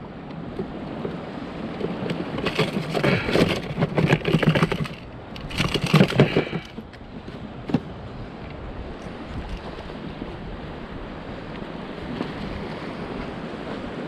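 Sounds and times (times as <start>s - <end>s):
surf: 0.0s - 14.0s
wind: 0.0s - 14.0s
crackling rustling fish handling: 1.9s - 7.0s.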